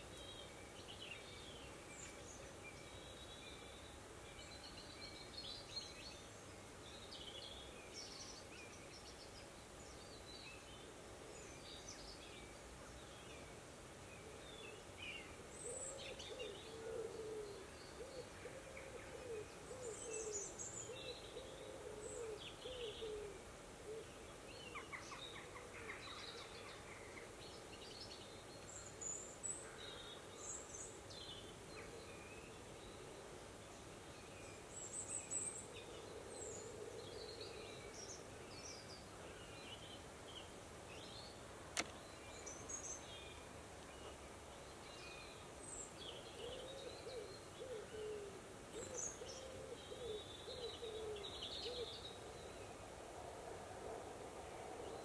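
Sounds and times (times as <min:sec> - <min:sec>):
bird cooing: 0:15.6 - 0:24.2, 0:35.7 - 0:38.0, 0:46.3 - 0:52.7
small birds chirping: 0:24.0 - 0:52.8.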